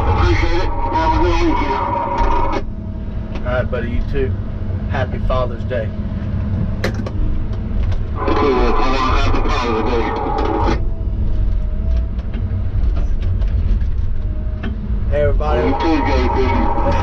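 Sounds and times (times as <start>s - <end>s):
higher busier engine burst: 0.0s - 6.4s, 8.1s - 10.9s, 15.2s - 17.0s
diesel engine low rumble: 0.0s - 17.0s
faint thin whine: 8.2s - 10.9s.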